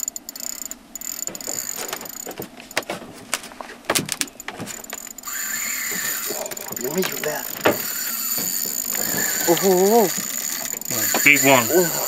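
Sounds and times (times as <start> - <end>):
spinning reel clicking: 0.0 - 2.3, 4.9 - 12.0
steady high whine: 4.3 - 12.0.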